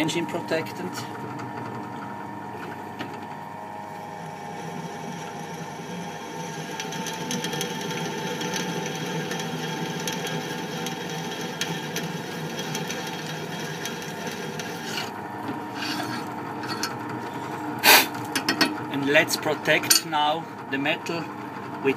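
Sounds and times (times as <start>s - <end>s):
drill press motor hum: 0.0s - 20.7s
drill bit cutting metal: 10.8s - 16.9s.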